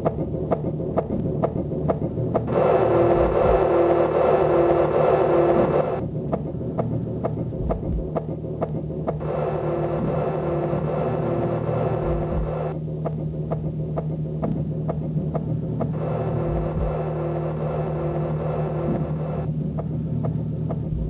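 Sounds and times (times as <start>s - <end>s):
low electronic hum: 0.0s - 21.0s
low throbs: 0.0s - 21.0s
ticking pulse of clicks: 0.0s - 21.0s
higher steady tone: 2.5s - 6.1s.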